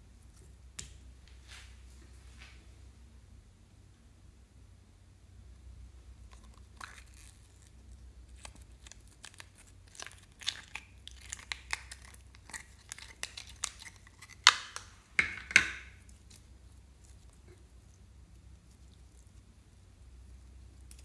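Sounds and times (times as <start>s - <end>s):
slime crackling and clicking: 8.4s - 15.0s.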